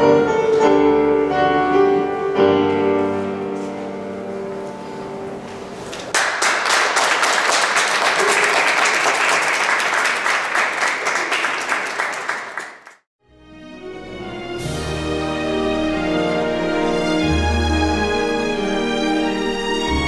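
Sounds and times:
audience applause: 0:06.0 - 0:13.0.

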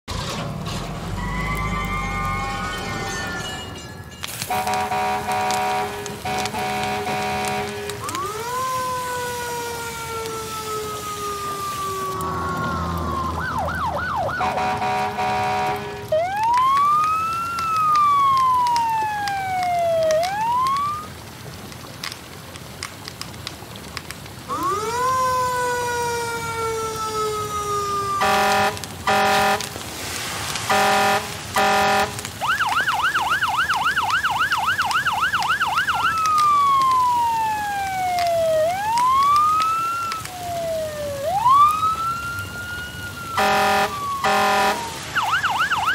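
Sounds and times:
fire truck siren yelp: 0:00.1 - 0:21.8, 0:24.2 - 0:45.9
siren wail rising and falling: 0:00.7 - 0:03.9, 0:04.5 - 0:21.2, 0:24.5 - 0:29.7, 0:30.7 - 0:45.9
siren horn blasts: 0:04.4 - 0:21.1, 0:24.5 - 0:29.9, 0:30.7 - 0:33.6, 0:35.8 - 0:45.9.

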